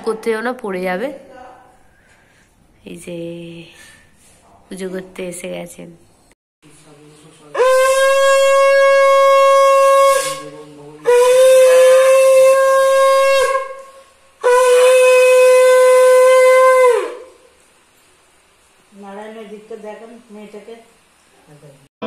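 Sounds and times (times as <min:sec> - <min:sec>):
conch shell blasts: 0:07.5 - 0:17.6.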